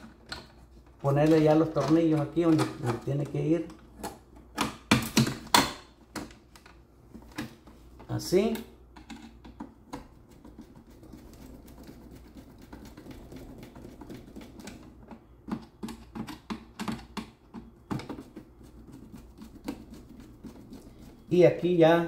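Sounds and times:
small clicks and knocks: 8.5 - 20.8.

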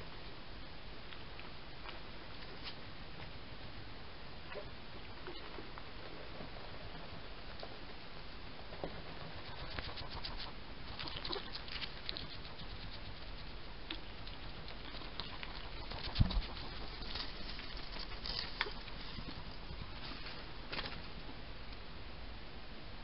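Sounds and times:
hedgehog pattering and rustling: 8.7 - 21.3.

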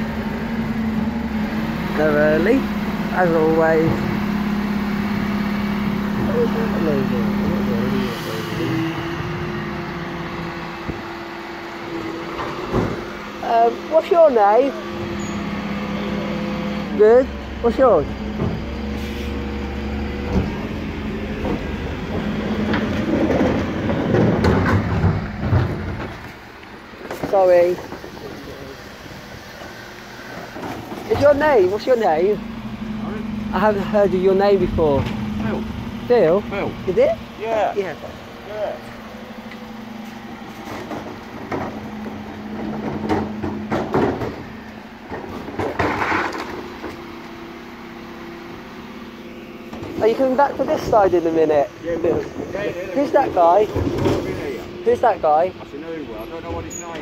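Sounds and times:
garbage truck humming: 0.0 - 57.0
rattling clattering noise: 20.2 - 31.9, 39.6 - 47.0, 49.7 - 57.0.

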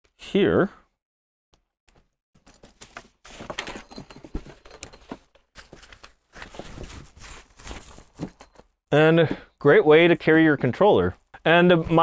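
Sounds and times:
fabric rustling: 5.6 - 8.6.

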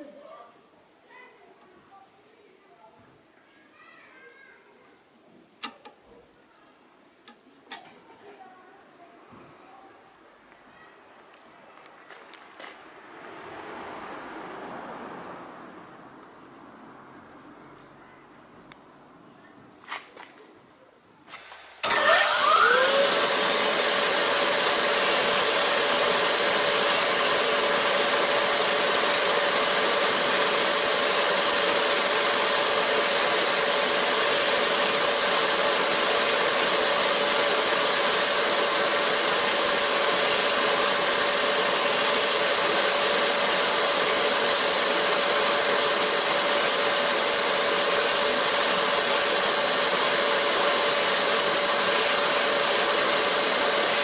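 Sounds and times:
machine motor humming: 21.8 - 54.0
wire brush wheel rushing: 21.8 - 54.0.

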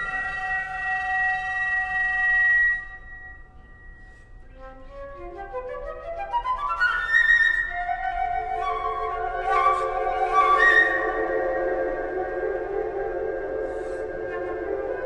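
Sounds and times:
solo flute: 0.0 - 15.0.

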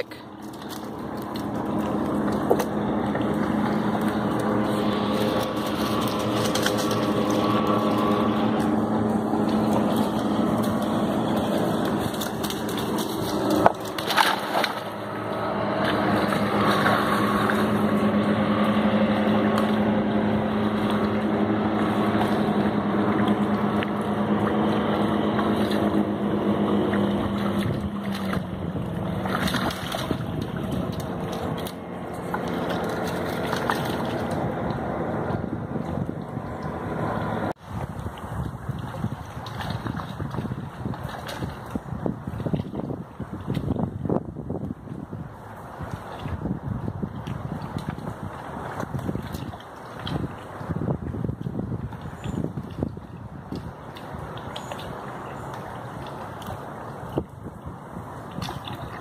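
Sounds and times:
motorboat engine droning: 0.0 - 59.0
dog splashing into water: 0.2 - 36.8.

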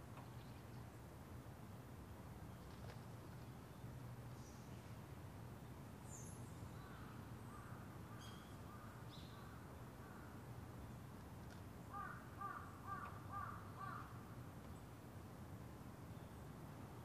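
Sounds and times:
crows cawing: 11.9 - 14.2.

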